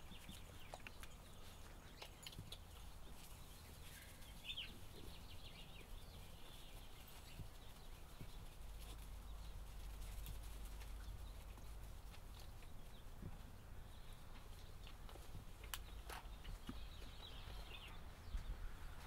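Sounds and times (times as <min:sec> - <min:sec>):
puppies rustling in wood shavings: 0:00.0 - 0:19.0.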